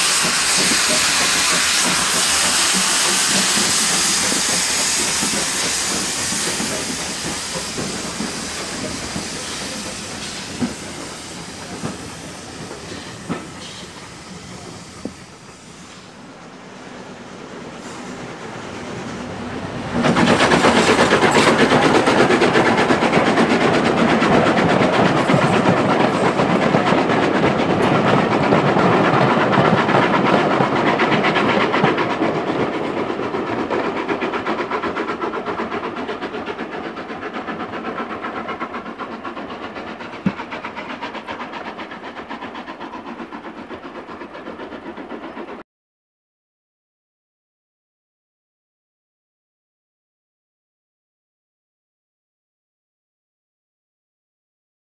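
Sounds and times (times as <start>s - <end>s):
train wheels clattering over rail joints: 19.9s - 45.6s.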